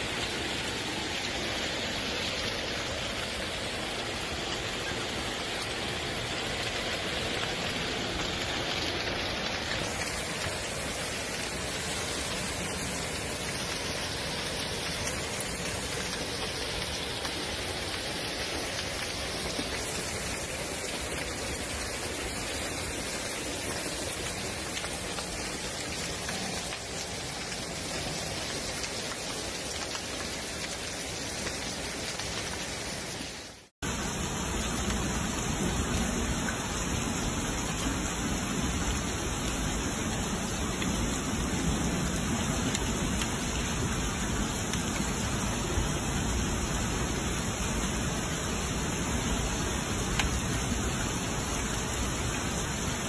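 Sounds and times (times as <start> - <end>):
heavy rain and hail: 0.0 - 53.0.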